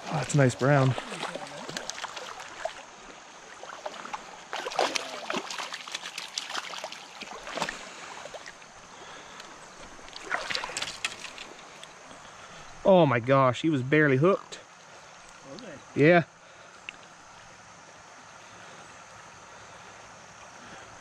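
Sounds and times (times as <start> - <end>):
stream flowing: 0.0 - 21.0
fish flapping and splashing: 0.8 - 2.9, 3.7 - 8.6, 10.0 - 11.8.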